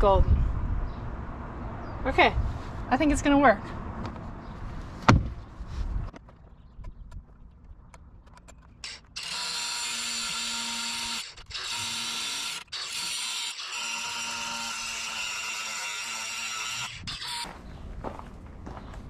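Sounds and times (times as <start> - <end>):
cordless tool cutting metal: 8.4 - 17.5.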